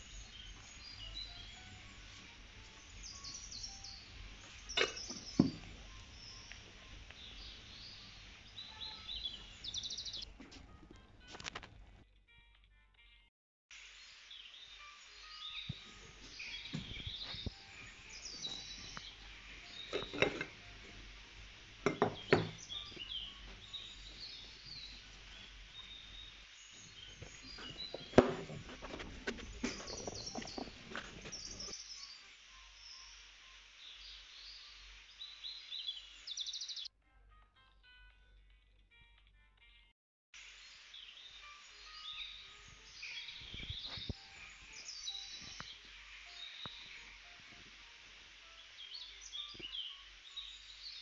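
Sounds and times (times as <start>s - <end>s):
birds chirping: 0.0s - 10.4s, 14.3s - 33.2s, 33.9s - 36.9s, 40.6s - 51.0s.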